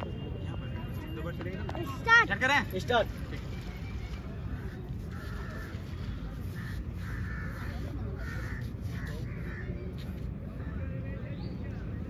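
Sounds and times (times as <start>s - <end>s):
crows cawing: 4.6s - 9.8s.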